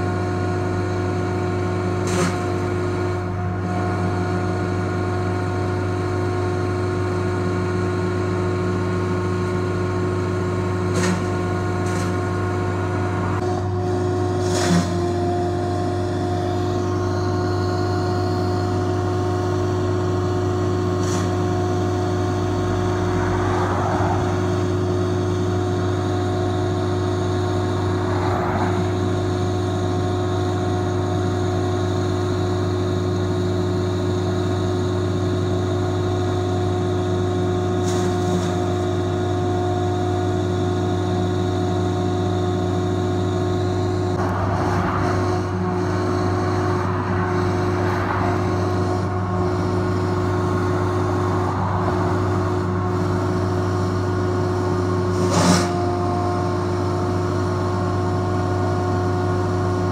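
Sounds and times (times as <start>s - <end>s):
wood chipper engine humming: 0.0s - 59.9s
car passing: 22.6s - 24.8s, 27.8s - 29.0s, 44.2s - 49.4s, 50.2s - 52.9s.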